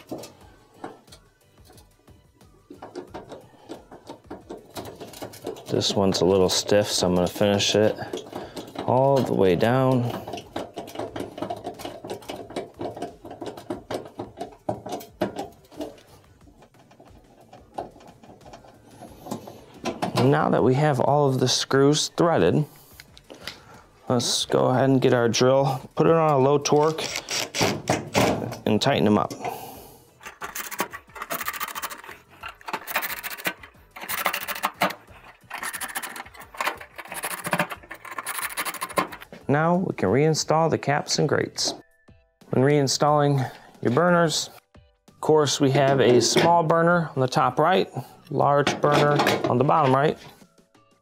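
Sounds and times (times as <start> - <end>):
screwdriver squeaks and clicks: 26.7 - 27.8.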